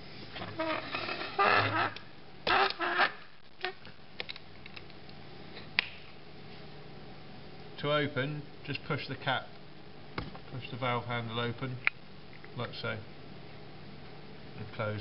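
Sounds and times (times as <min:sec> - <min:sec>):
hose coupling squeaking: 0:00.4 - 0:03.8.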